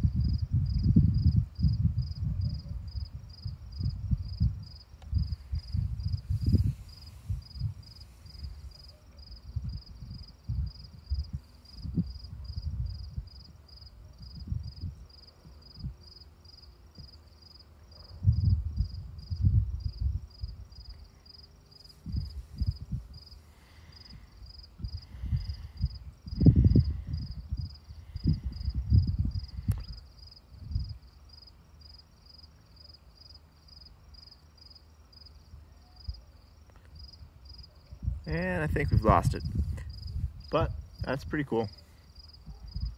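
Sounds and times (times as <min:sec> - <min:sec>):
low microphone rumbles: 0:00.0 - 0:13.6, 0:14.2 - 0:15.1, 0:18.1 - 0:20.8, 0:22.0 - 0:23.2, 0:24.2 - 0:31.0, 0:38.0 - 0:41.1
cricket chirping: 0:00.0 - 0:42.9.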